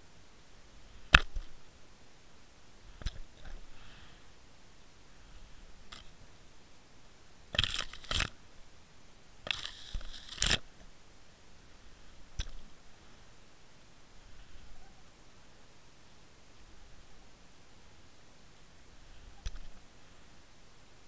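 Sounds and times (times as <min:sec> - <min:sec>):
faint ticks: 0:02.9 - 0:04.0, 0:12.3 - 0:12.8, 0:19.0 - 0:19.9
kelp scraping against camera housing: 0:07.5 - 0:08.3, 0:09.5 - 0:10.7.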